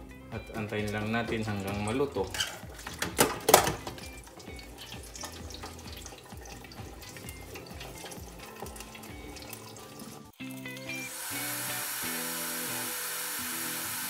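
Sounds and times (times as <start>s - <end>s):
hot oil sizzling and popping: 0.1s - 14.0s
metal lid clanking: 1.6s - 4.1s.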